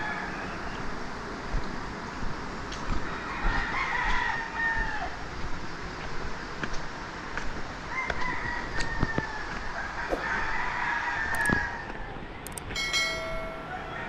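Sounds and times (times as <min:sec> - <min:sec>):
rooster crowing: 0:00.0 - 0:00.9, 0:03.0 - 0:05.3, 0:07.9 - 0:12.2, 0:12.9 - 0:14.0.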